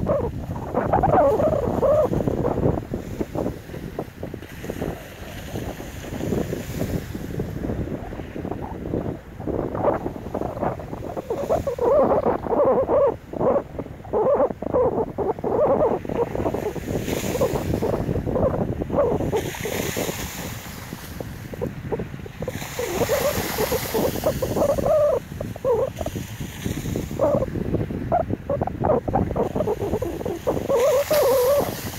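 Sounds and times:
wind gusting on microphone: 0.0s - 31.9s
slushy water washing ashore: 15.9s - 28.4s.

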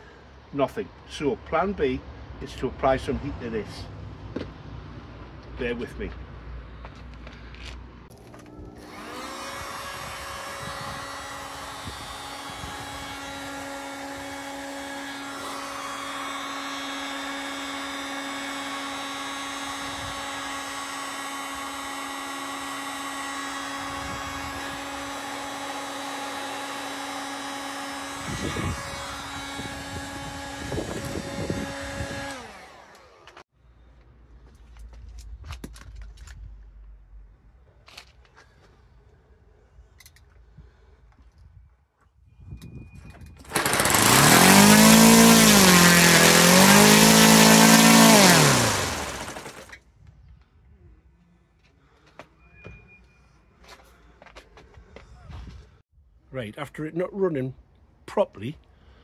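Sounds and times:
heat gun fan hum: 8.1s - 33.4s, 43.4s - 49.7s.

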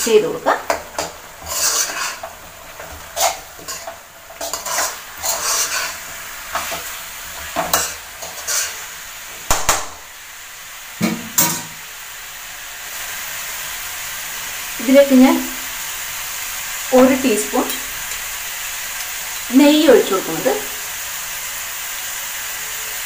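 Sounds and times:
frying sizzle: 0.0s - 23.0s
metal spatula scraping a pan: 0.7s - 8.9s
sharp knock: 9.5s - 10.0s.

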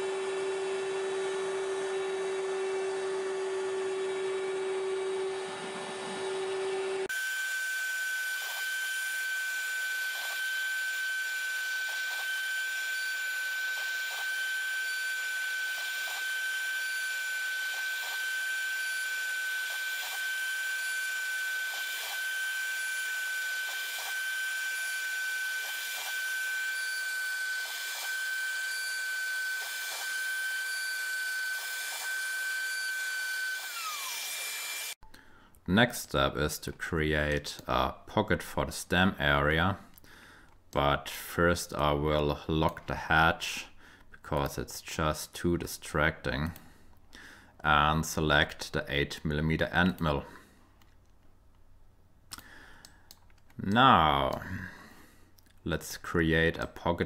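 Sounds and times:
router spindle high whine: 0.0s - 35.0s.

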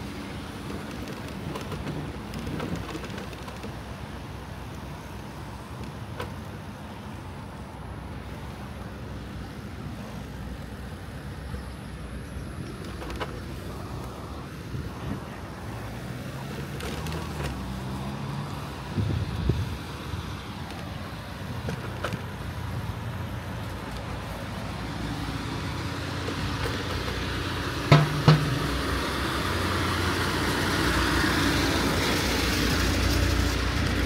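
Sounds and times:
car engines and tyre noise: 0.0s - 34.0s
low engine hum: 0.0s - 34.0s
low thumps: 27.9s - 29.3s.

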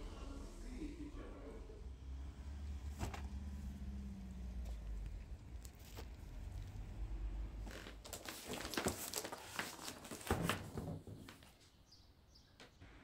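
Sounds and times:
low rumble: 0.0s - 4.0s
cardboard scraping and rustling: 7.7s - 11.6s.

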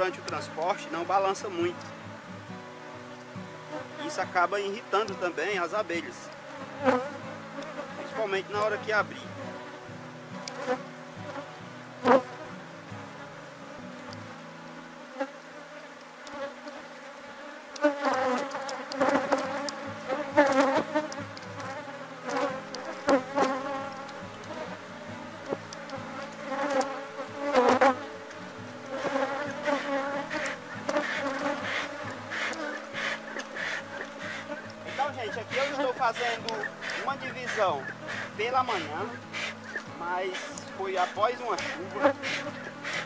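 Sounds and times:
honeybees buzzing: 0.0s - 43.0s
hive tool knocking and scraping: 17.8s - 24.7s, 28.9s - 43.0s.

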